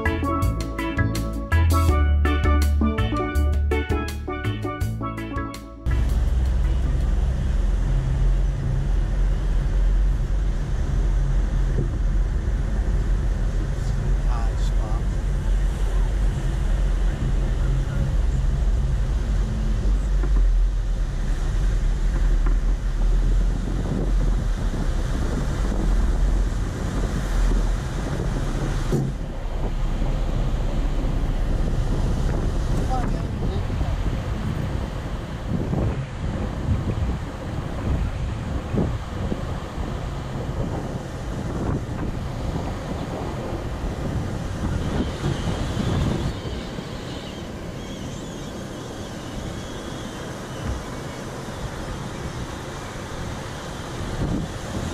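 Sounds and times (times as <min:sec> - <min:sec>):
surf breaking on beach: 0:05.9 - 0:54.9
wind buffeting microphone: 0:05.9 - 0:54.9
faint high bird calls: 0:45.0 - 0:51.2.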